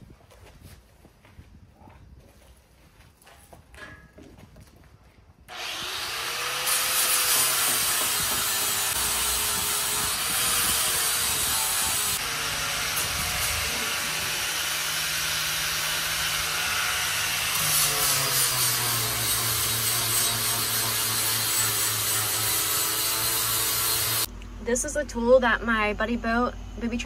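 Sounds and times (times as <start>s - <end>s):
power grinder sanding fibreglass: 5.5s - 24.3s.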